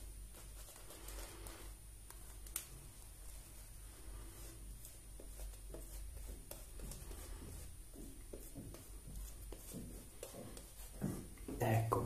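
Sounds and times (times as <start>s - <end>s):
shaving brush scratchy brushing: 3.2s - 11.4s.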